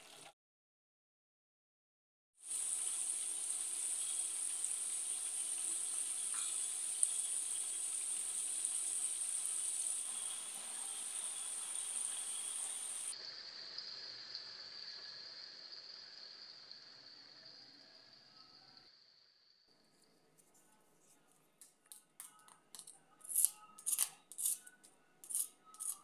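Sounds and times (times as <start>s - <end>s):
food deep-frying in oil: 0.0s - 0.3s, 2.4s - 19.6s.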